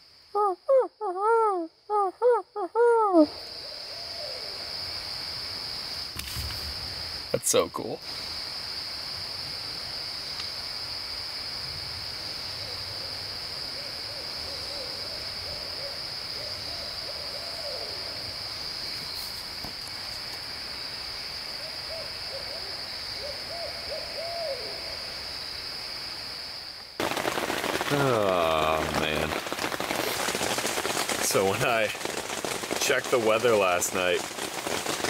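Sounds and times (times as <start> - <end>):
high insect drone: 0.0 - 35.0
person imitating owl calls: 0.4 - 3.4
owl hooting: 0.4 - 4.5, 21.9 - 25.0.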